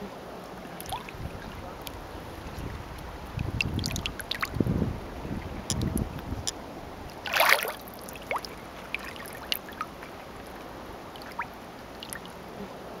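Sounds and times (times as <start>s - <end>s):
water lapping and trickling: 0.2s - 12.6s
water splash: 0.7s - 4.7s, 7.1s - 12.4s
small water drips: 0.8s - 4.8s, 5.4s - 12.4s.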